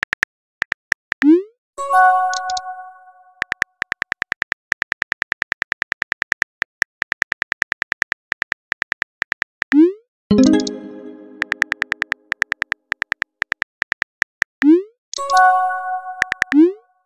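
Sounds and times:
keyboard typing clicks: 0:02.3 - 0:02.8, 0:03.4 - 0:15.4, 0:16.2 - 0:16.6
message sent chime: 0:10.3 - 0:12.0.

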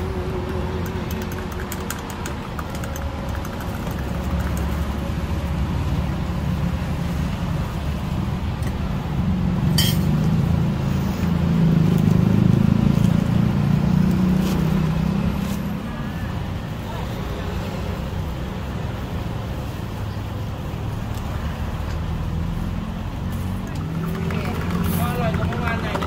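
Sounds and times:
road traffic rumbling: 0:00.0 - 0:26.0
cups and utensils clinking: 0:09.8 - 0:10.1, 0:23.7 - 0:26.0.

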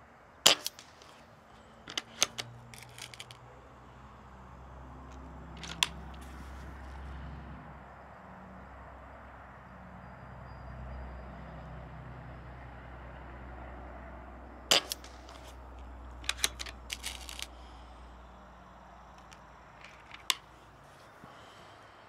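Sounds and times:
rifle bolt clicking: 0:16.2 - 0:17.5.

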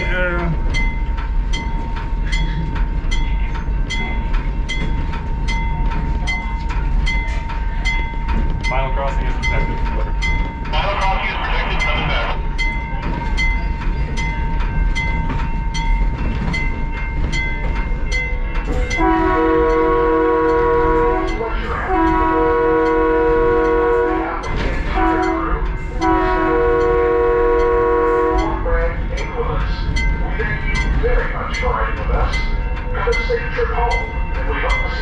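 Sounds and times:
railroad crossing bell dinging: 0:00.0 - 0:35.0
locomotive chime air horn blasts: 0:18.9 - 0:28.6.

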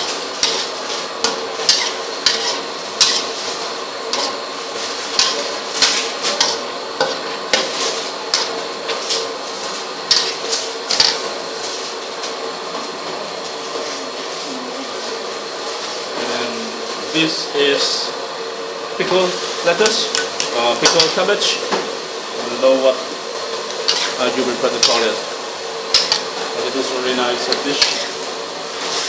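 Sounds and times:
food sizzling in a pan: 0:00.0 - 0:29.0
utensil scraping a pan: 0:00.4 - 0:03.5, 0:04.1 - 0:11.9, 0:22.4 - 0:29.0.

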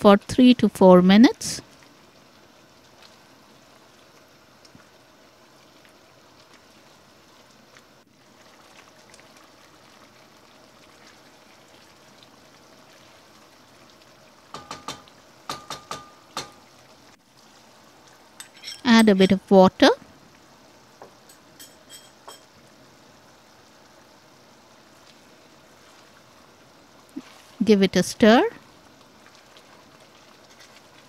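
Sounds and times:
food sizzling in a pot: 0:09.0 - 0:19.0, 0:19.7 - 0:27.6
wooden spatula knocking a pot: 0:14.6 - 0:16.6.

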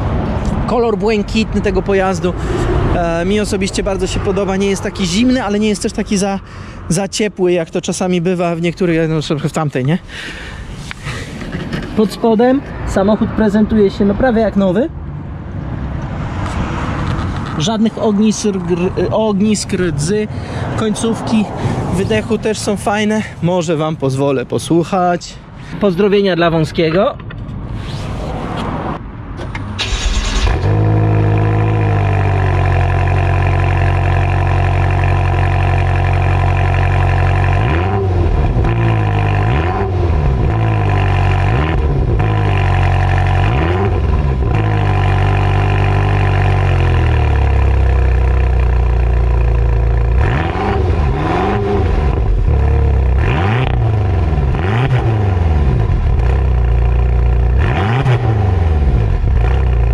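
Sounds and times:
car engine starting: 0:28.0 - 0:59.9
car engine idling: 0:29.5 - 0:39.5, 0:40.1 - 0:50.4, 0:55.6 - 0:57.7
engine revving blips: 0:29.8 - 0:48.8, 0:49.4 - 0:59.9.

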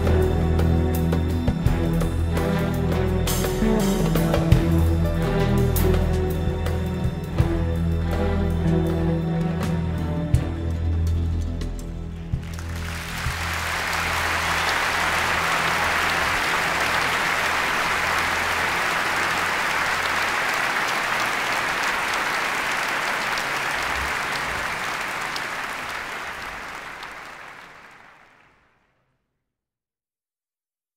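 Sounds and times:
crowd applauding: 0:12.4 - 0:28.8.

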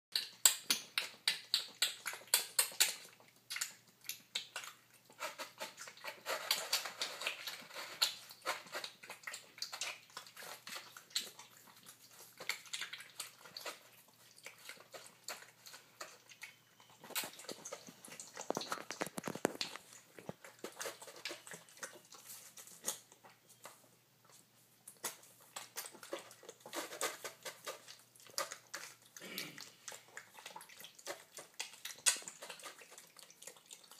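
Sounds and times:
piglet chomping wet food: 0:00.1 - 0:33.9.

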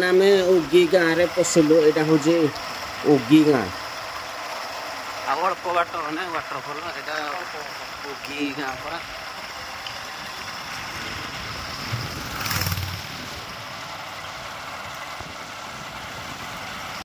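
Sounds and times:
road and wind noise: 0:06.2 - 0:17.0
vehicle engine running: 0:09.2 - 0:16.0.

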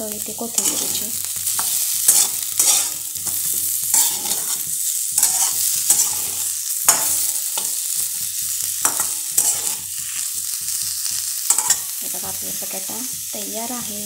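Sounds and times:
frying sizzle: 0:00.0 - 0:14.0
metal spatula scraping pan: 0:00.6 - 0:12.0.

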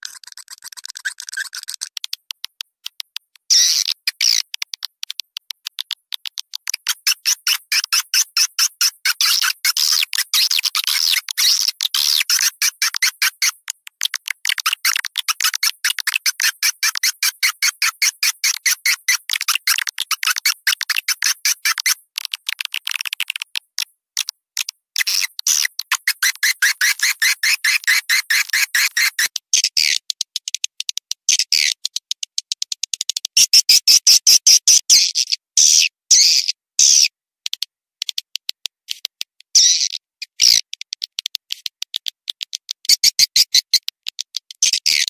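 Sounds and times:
swiftlet twittering chirps: 0:25.0 - 0:29.3.

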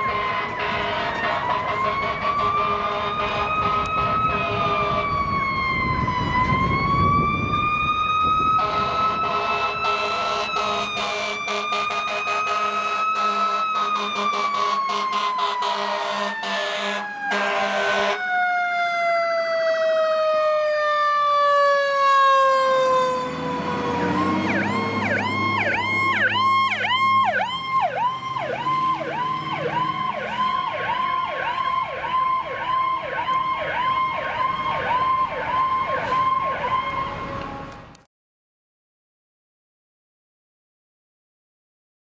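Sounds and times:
horn blasts: 0:00.0 - 0:05.2, 0:08.5 - 0:18.2
electronic siren yelping: 0:00.0 - 0:37.7
fire engine siren wailing: 0:00.0 - 0:38.0
truck engine passing: 0:00.0 - 0:38.0.

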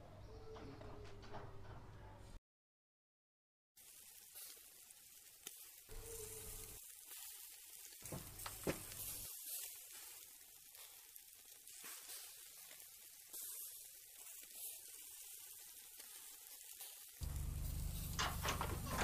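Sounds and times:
meat sizzling on a grill: 0:03.8 - 0:19.0
metal tongs clicking on grate: 0:17.2 - 0:19.0.

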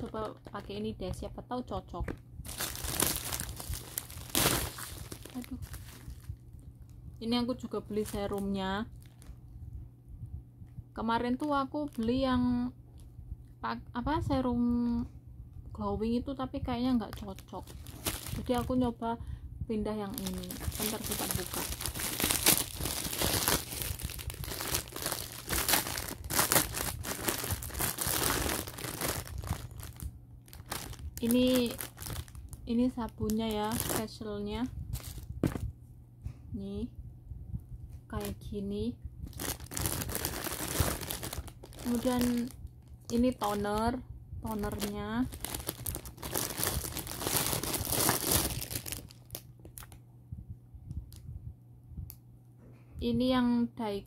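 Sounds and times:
bubble wrap crinkling: 0:00.0 - 0:01.3, 0:02.0 - 0:09.4, 0:17.0 - 0:19.0, 0:20.0 - 0:34.3, 0:34.9 - 0:35.7, 0:39.2 - 0:43.9, 0:44.5 - 0:50.0.

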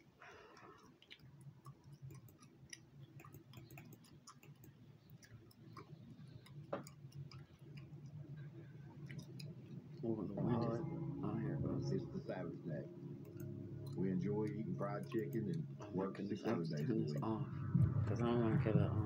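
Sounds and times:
computer mouse clicking: 0:00.0 - 0:08.2, 0:13.2 - 0:15.6
low steady hum: 0:00.0 - 0:19.0
gum chewing clicks: 0:00.6 - 0:10.0.

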